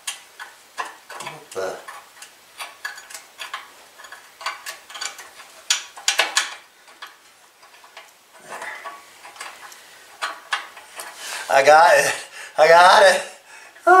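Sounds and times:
metallic clicks of hand tools: 0.0 - 11.2.

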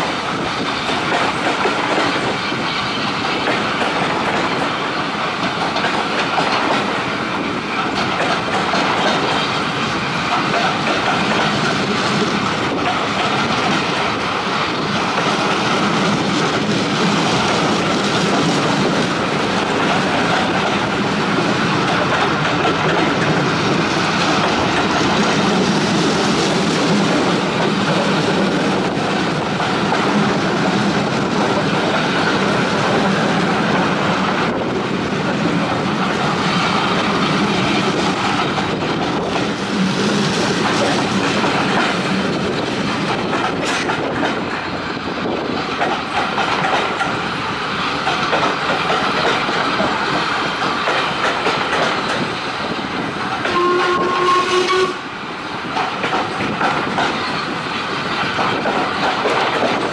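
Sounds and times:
train wheels on track: 0.0 - 59.9
steam locomotive whistle: 53.5 - 55.1.

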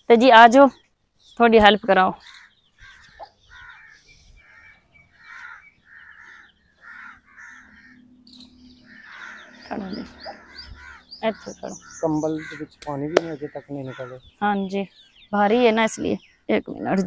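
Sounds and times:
crow cawing: 2.2 - 14.4.

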